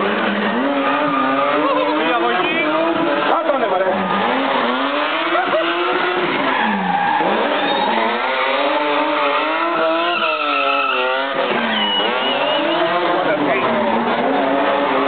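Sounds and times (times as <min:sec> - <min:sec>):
car engine revving: 0:00.0 - 0:15.0
tyres squealing: 0:00.1 - 0:15.0.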